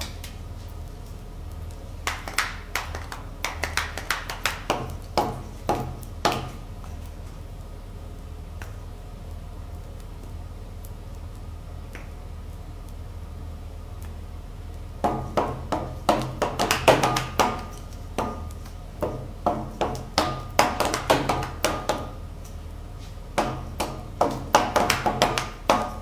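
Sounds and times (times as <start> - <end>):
wooden pepper mills tapping: 15.0 - 22.2, 23.4 - 26.0.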